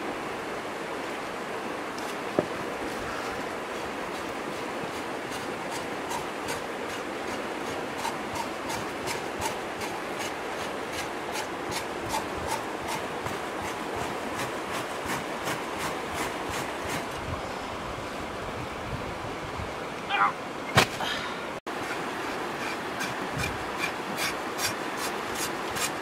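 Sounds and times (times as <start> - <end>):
stream rushing: 0.0 - 26.0
hands scraping pig skin: 3.1 - 17.2.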